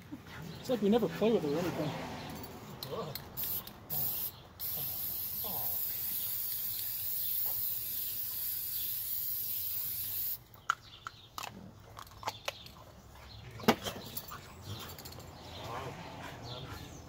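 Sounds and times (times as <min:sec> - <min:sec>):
spray paint can hissing: 0:03.4 - 0:10.4.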